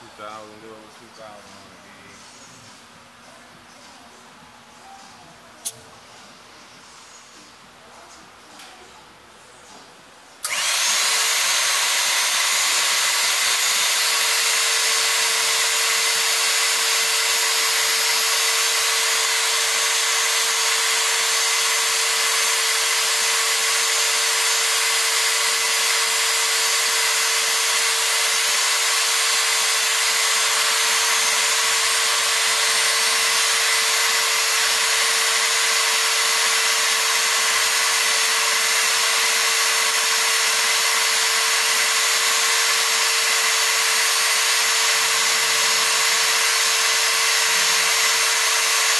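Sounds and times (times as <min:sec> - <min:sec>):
hydraulic pump running: 0:10.4 - 0:48.9.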